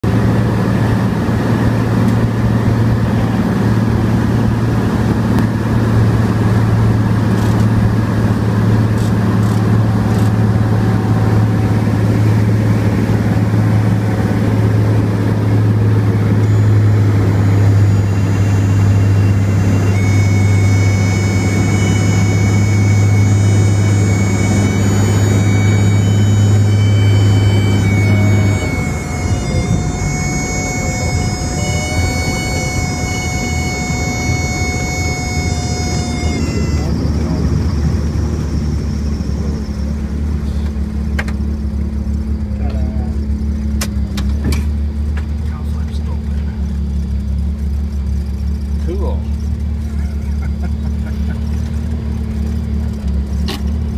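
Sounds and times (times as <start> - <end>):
propeller plane engine droning: 0.0 - 53.9
high-pitched tone: 15.3 - 40.2.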